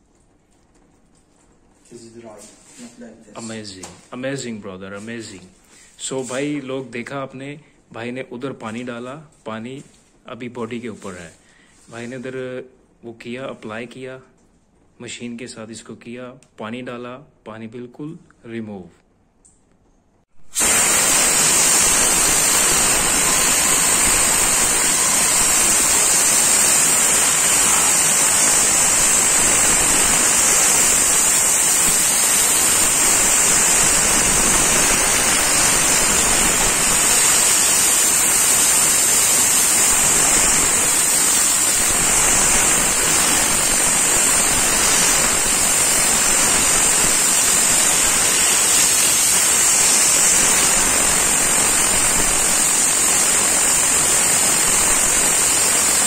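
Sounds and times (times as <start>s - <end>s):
compressed air hissing: 20.4s - 56.0s.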